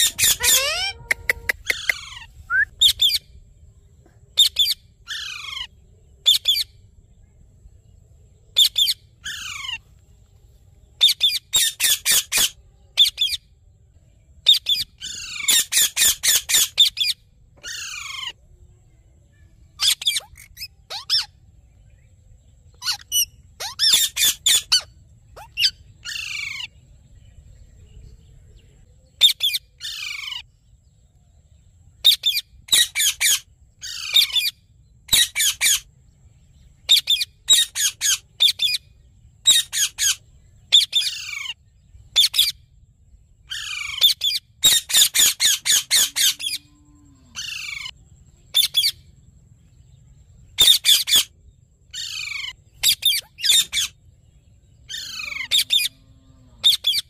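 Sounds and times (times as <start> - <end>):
parakeets squawking: 0.0 - 3.2, 14.5 - 18.4, 19.8 - 21.3, 22.8 - 26.7, 36.9 - 38.8, 43.5 - 46.6, 50.6 - 51.3, 52.0 - 54.0, 54.9 - 55.9, 56.6 - 57.0.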